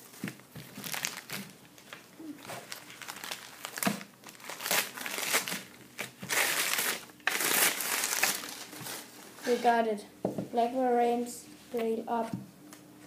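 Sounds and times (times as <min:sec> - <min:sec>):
newspaper crumpling and rustling: 0:00.0 - 0:09.6.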